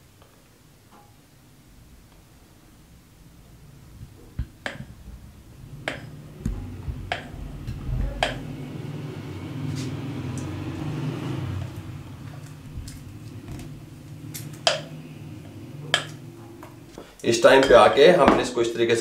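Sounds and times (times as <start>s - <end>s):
sharp clicks and knocks: 4.0s - 5.1s, 5.8s - 8.5s.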